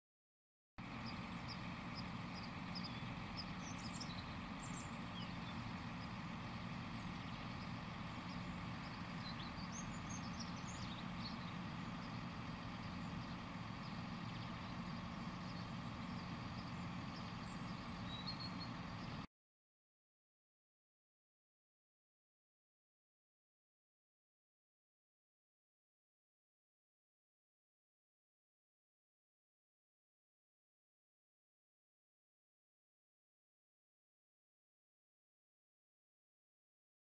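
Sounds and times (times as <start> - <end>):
faint bird chirps: 0.8 - 19.3
truck engine idling: 0.8 - 19.3.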